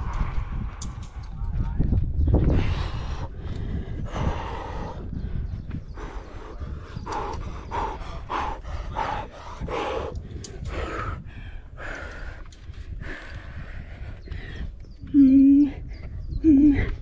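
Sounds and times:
low rumble: 0:00.0 - 0:17.0
person breathing hard: 0:02.4 - 0:14.8.

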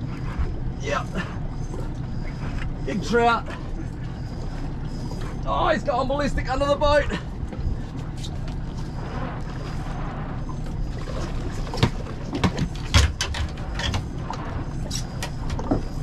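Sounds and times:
wind and sea rumble: 0:00.0 - 0:16.0
water splashing: 0:06.0 - 0:16.0.

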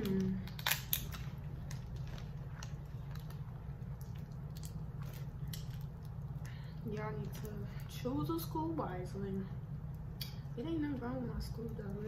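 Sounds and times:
crab shell cracking and squishing: 0:00.0 - 0:07.6
steady low hum: 0:00.0 - 0:12.0.

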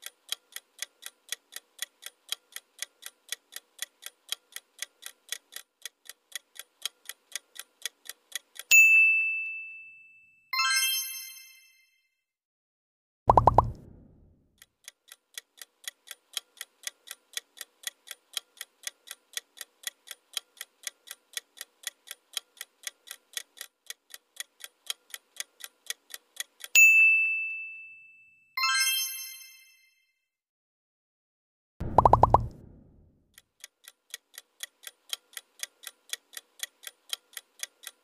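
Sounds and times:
clock ticking: 0:00.0 - 0:08.8, 0:14.6 - 0:26.8, 0:31.8 - 0:38.0
sharp high ding: 0:08.7 - 0:10.4, 0:26.8 - 0:28.4
multi-toned chime: 0:09.0 - 0:12.0, 0:27.0 - 0:30.0.

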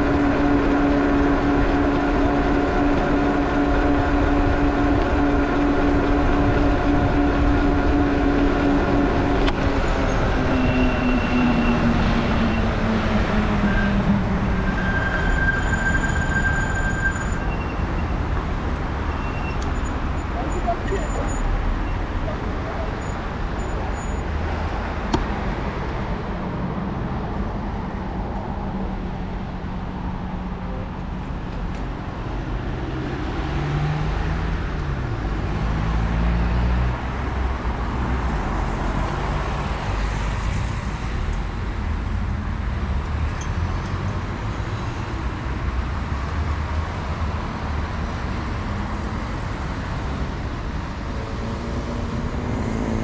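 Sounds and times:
engine hum: 0:00.0 - 0:53.0
cars driving past: 0:21.4 - 0:53.0.

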